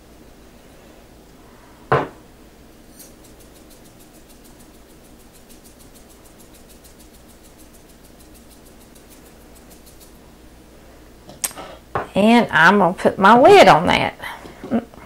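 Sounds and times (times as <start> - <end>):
glass shaker shaken: 2.8 - 10.2.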